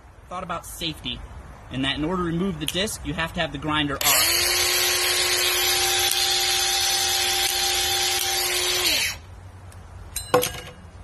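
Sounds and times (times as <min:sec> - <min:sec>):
angle grinder whining: 0:04.0 - 0:09.3.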